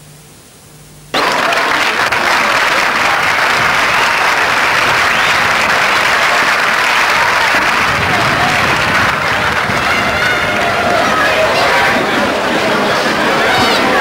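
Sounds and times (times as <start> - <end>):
crowd applauding: 1.1 - 14.0.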